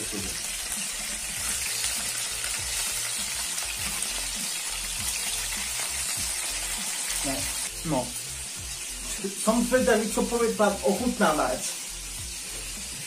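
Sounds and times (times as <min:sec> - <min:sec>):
chicken sizzling in hot oil: 0:00.0 - 0:13.0.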